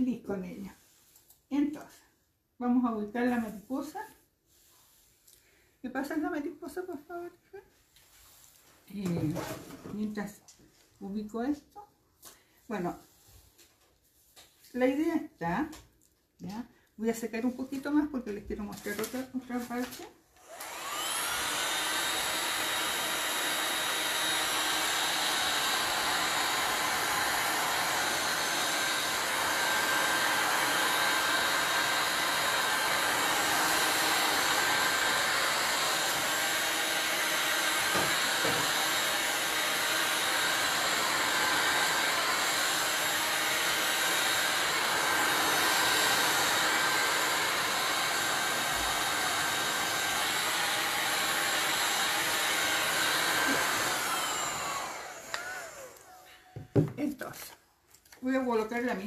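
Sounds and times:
hot air gun blowing: 20.6s - 56.1s.

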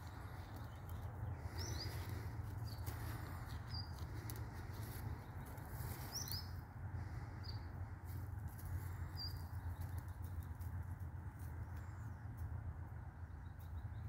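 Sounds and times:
steady low hum: 0.0s - 14.0s
small bird chirping: 0.1s - 6.6s, 8.8s - 10.5s.

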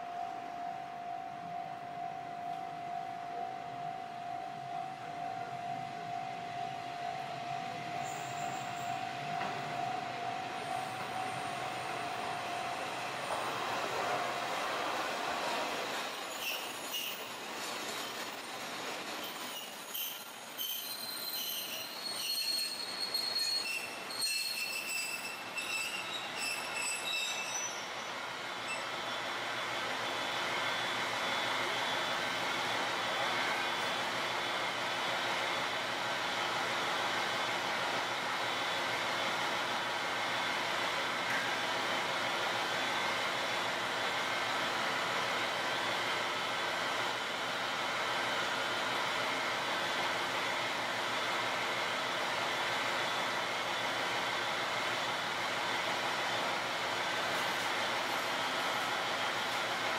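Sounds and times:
train brake squeal: 7.1s - 32.8s.

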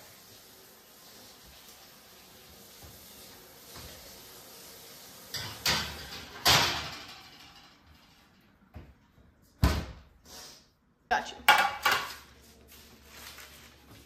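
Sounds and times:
oven door and baking tray clanking: 5.3s - 8.4s.

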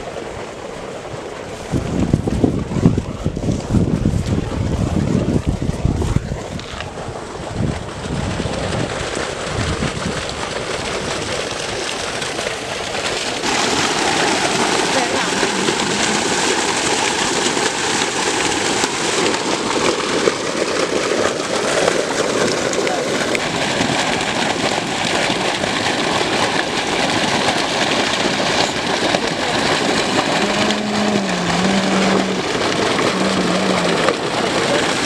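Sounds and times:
wind buffeting microphone: 1.5s - 11.7s
water pouring into metal pot: 7.6s - 35.0s.

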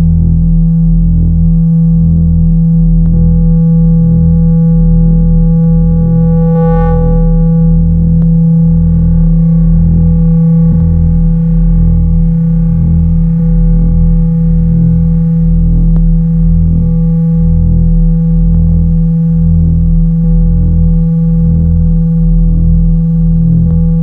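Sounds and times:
pulsing synth bass: 0.0s - 24.0s
synthesizer drone: 0.0s - 24.0s
high synth tone: 3.1s - 13.5s.

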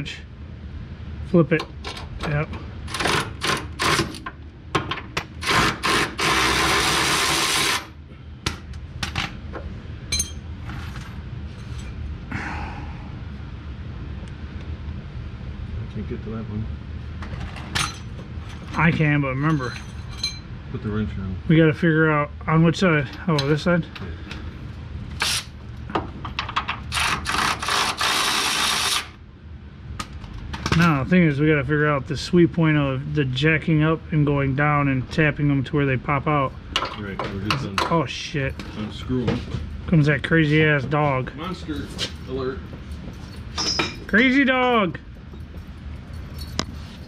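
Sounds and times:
steady tool noise: 2.9s - 4.4s, 5.4s - 8.0s, 26.9s - 29.2s
metal clink ringing: 10.1s - 10.4s, 19.5s - 20.5s, 43.3s - 44.1s.

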